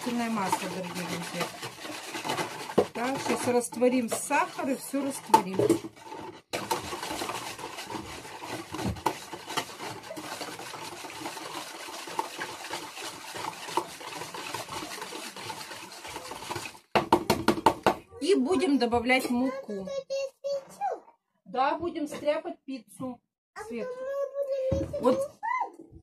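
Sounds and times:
utensil stirring in a bowl: 0.0s - 19.5s.

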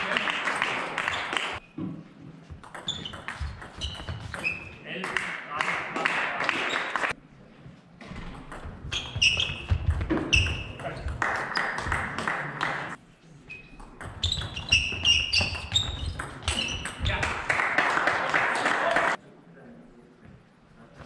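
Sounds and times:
table tennis ball hits: 0.5s - 5.3s, 8.2s - 12.9s, 13.8s - 17.7s.

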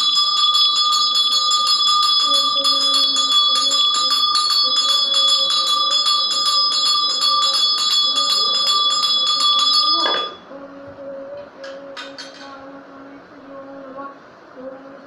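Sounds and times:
hand bell ringing rapidly: 0.0s - 10.4s.

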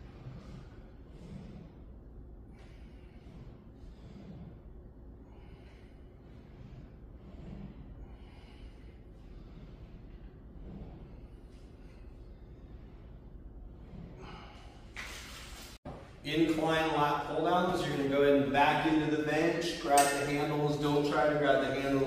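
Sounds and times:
man breathing with effort: 0.0s - 16.2s.

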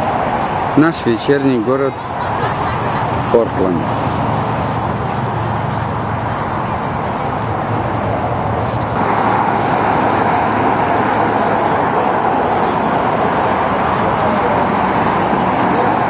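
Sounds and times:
road traffic noise: 0.0s - 16.0s.

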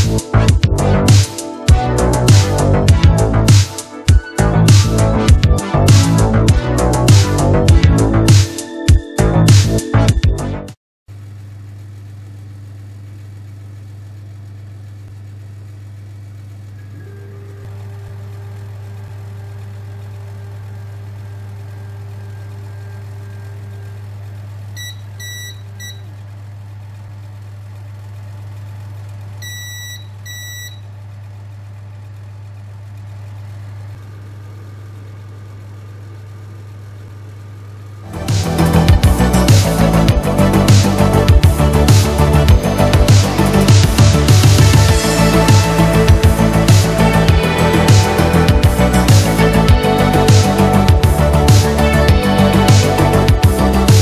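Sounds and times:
printer low hum: 0.0s - 9.5s, 11.1s - 54.0s
stepper motor whining: 14.9s - 54.0s
short electronic beeps: 24.8s - 26.0s, 29.4s - 30.8s.

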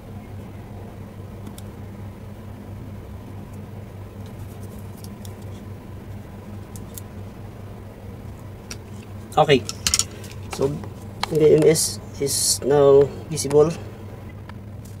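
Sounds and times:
steady low hum: 0.0s - 15.0s
clicks and scratches of handling: 4.2s - 7.1s, 8.2s - 11.8s.

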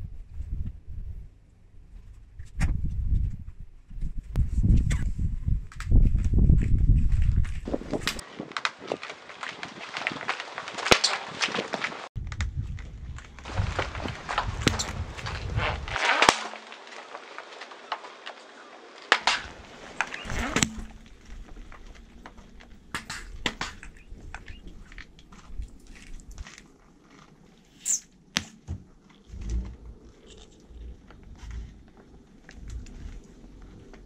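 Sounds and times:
tyre crushing plastic cubes: 7.7s - 12.1s, 13.4s - 26.7s.

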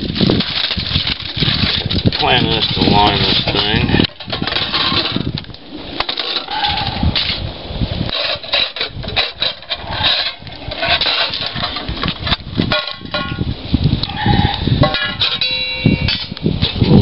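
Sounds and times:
aluminium foil crinkling: 0.0s - 6.7s.

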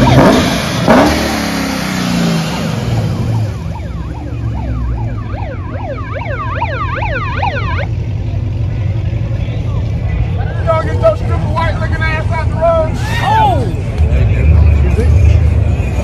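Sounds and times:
warbling electronic siren: 0.0s - 0.6s, 2.5s - 7.9s
cars idling with low rumble: 0.0s - 16.0s.

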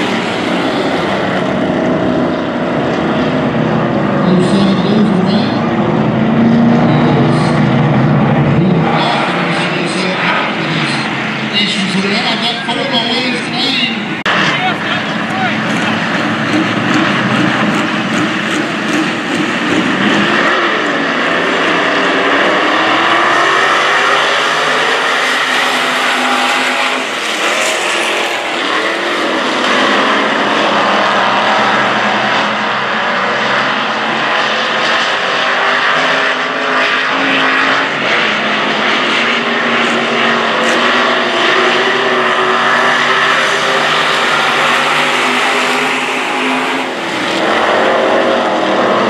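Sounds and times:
racing car engines: 0.0s - 49.0s.

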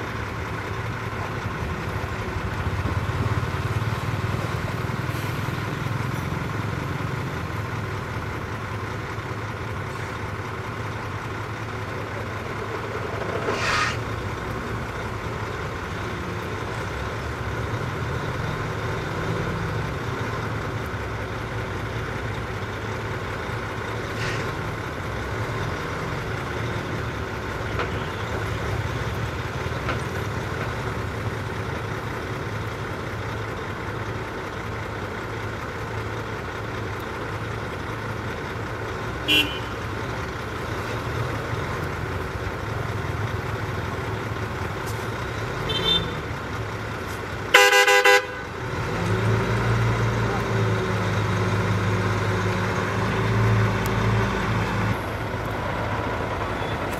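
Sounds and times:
heavy diesel engine running: 0.0s - 56.9s
loud horn blast: 39.3s - 39.8s, 47.5s - 48.5s.

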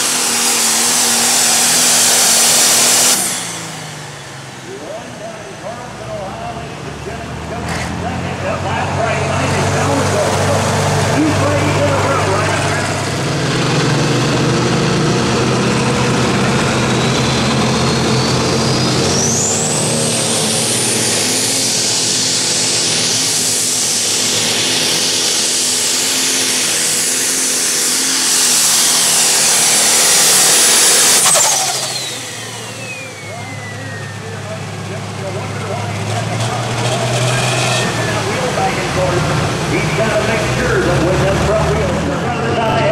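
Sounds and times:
diesel tractor engine roaring: 0.0s - 42.9s
high turbo whistle: 26.6s - 34.6s.

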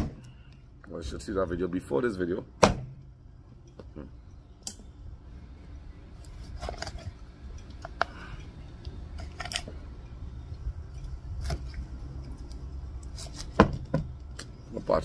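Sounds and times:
cleaver chopping on wooden board: 2.6s - 3.0s.

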